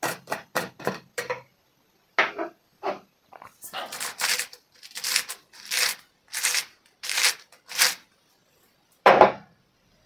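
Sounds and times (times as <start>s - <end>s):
rasping hand strokes: 3.7s - 8.0s.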